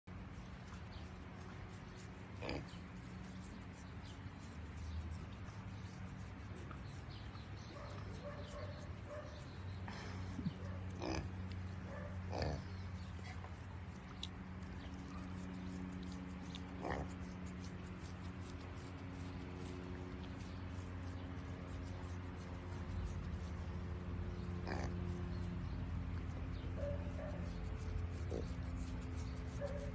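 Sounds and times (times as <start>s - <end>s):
piglets grunting and squeaking: 2.3s - 3.4s, 10.3s - 11.5s, 12.2s - 13.5s, 16.4s - 17.6s, 24.6s - 25.1s.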